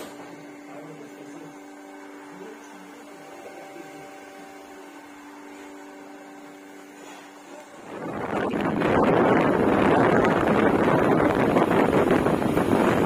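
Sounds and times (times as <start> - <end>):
low electrical hum: 0.0 - 13.0
loud rush of wind-like noise: 7.8 - 13.0.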